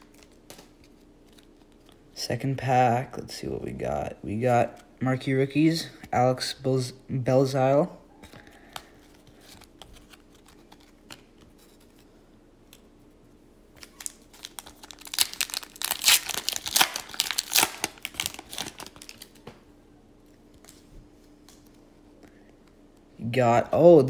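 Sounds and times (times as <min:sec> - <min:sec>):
foil wrapper crinkling and tearing: 0:13.8 - 0:19.5.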